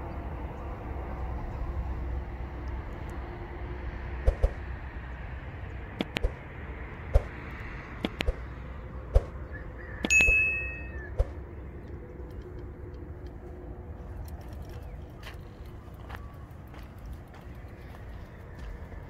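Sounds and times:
sharp clicks: 6.0s - 6.4s, 8.0s - 8.4s
notification bell ding: 10.1s - 11.1s.

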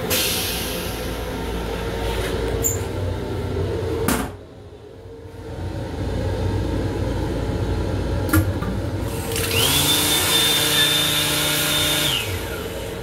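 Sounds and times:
train rumble: 0.0s - 9.1s
motor whine: 9.0s - 13.0s.

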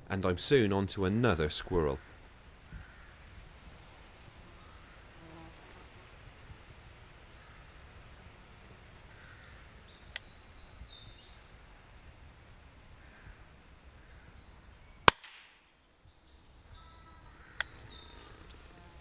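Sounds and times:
birds singing: 9.0s - 15.1s, 15.8s - 19.0s
air rifle shot crack: 15.0s - 15.6s.

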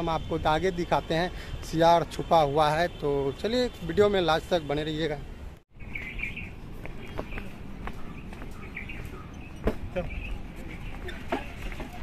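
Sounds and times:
birds chirping: 2.7s - 12.0s
footsteps on wooden planks: 6.8s - 12.0s.

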